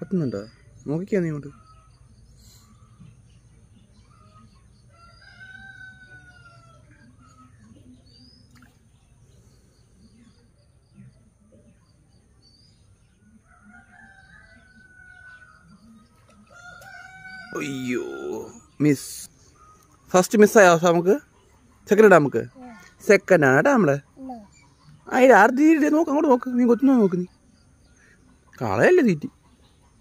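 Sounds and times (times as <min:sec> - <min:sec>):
small birds chirping: 0:00.0 - 0:30.0
rooster crowing faintly: 0:16.4 - 0:18.6.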